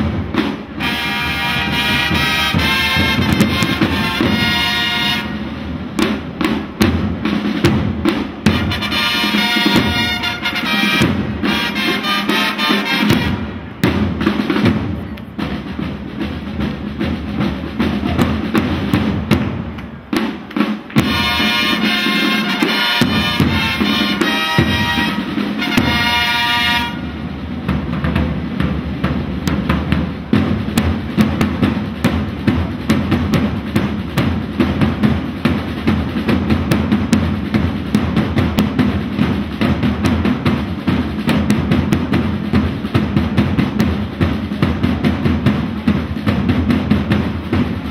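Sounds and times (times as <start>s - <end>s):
snare and bass drums marching beat: 0.0s - 47.9s
long trumpet notes: 0.8s - 5.4s, 8.6s - 13.6s, 21.0s - 27.2s.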